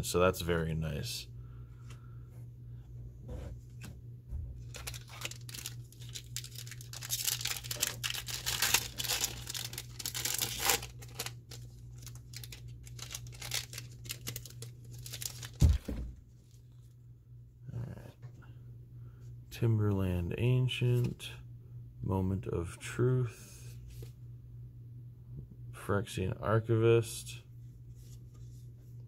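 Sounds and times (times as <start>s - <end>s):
low steady hum: 0.0s - 29.0s
foil wrapper tearing and crinkling: 4.7s - 15.8s.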